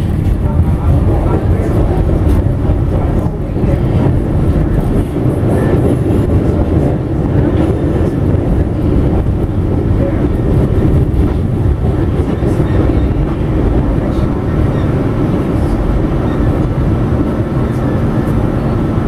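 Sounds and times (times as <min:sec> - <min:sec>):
subway car rumbling: 0:00.0 - 0:19.0.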